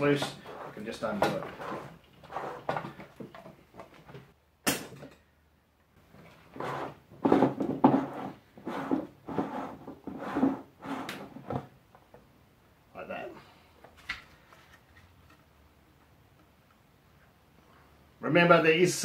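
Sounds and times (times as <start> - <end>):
plastic scraping on plastic: 0.0 - 4.2, 6.2 - 11.7.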